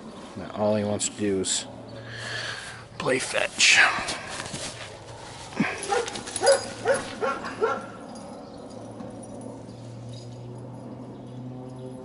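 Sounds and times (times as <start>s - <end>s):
dog yipping: 5.8s - 8.0s.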